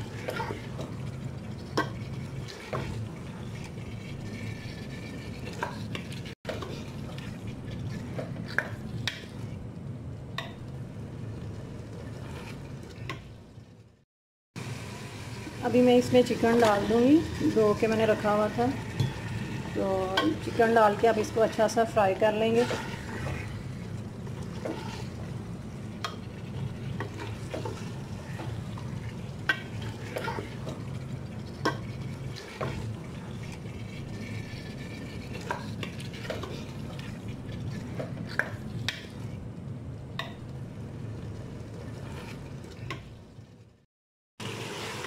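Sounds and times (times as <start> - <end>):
wooden spoon scraping metal pot: 0.0 - 9.5, 12.0 - 13.1, 16.0 - 25.3, 26.1 - 38.5, 41.8 - 43.0.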